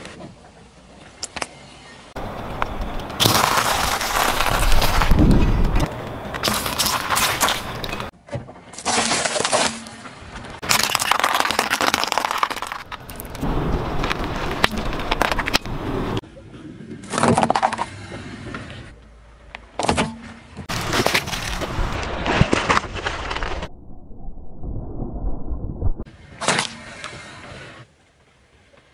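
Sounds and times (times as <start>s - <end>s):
tyre crushing small objects: 2.2s - 8.1s, 10.6s - 16.2s, 20.7s - 23.7s.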